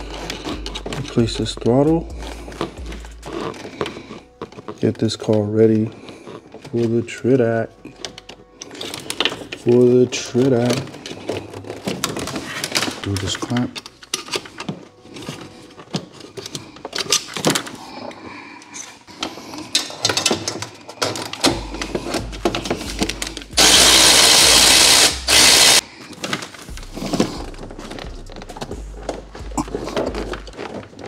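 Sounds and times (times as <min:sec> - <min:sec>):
hand tools clicking and clattering: 0:00.0 - 0:31.0
loud hiss: 0:23.6 - 0:25.8.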